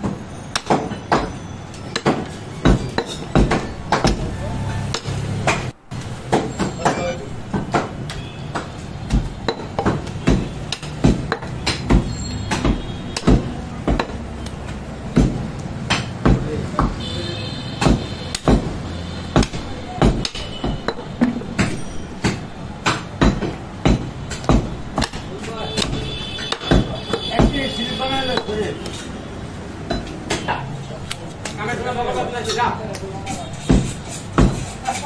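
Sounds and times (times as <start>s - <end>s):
heavy blade chopping meat: 7.6s - 17.0s, 17.8s - 29.0s, 33.4s - 35.0s.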